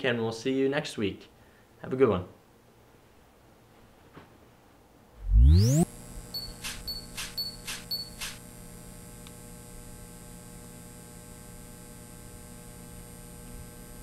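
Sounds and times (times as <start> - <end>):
electronic swishes: 5.2 - 8.4
high beeps: 5.2 - 8.4
low electronic hum: 5.2 - 12.4.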